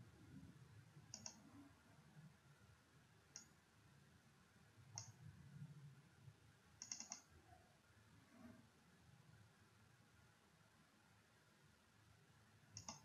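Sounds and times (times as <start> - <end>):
computer mouse clicking: 1.1 - 1.4, 3.3 - 3.5, 5.0 - 5.2, 6.8 - 7.3, 12.8 - 13.0.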